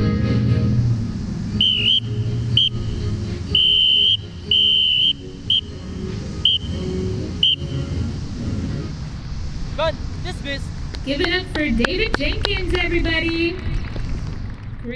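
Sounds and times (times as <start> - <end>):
soft background music: 0.0 - 9.3
whistle blasts: 1.6 - 2.9, 3.5 - 5.8, 6.4 - 8.0.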